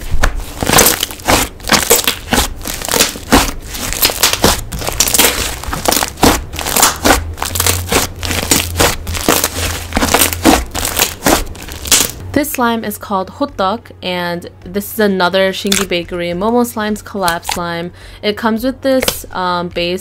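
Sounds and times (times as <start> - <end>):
slime squished by hand: 0.2 - 12.2.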